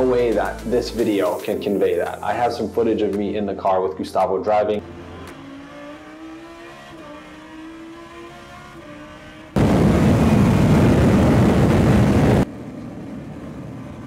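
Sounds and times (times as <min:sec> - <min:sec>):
race car engine at speed: 0:04.8 - 0:14.0
rising hum: 0:04.8 - 0:14.0.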